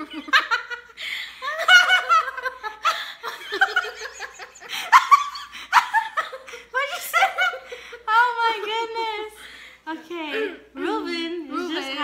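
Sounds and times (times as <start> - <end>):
women laughing loudly: 0.0 - 8.1.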